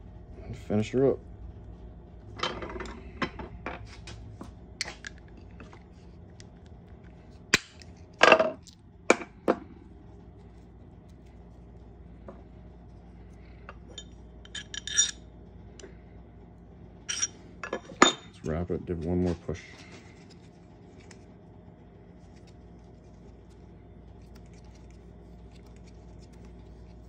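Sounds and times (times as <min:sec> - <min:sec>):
metal tools clinking: 0:13.8 - 0:15.2, 0:17.1 - 0:18.4.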